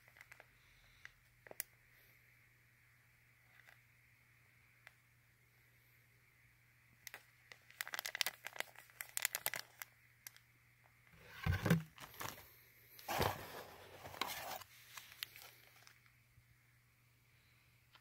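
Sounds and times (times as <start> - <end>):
plastic bag crinkling: 7.1 - 9.9, 14.1 - 16.0.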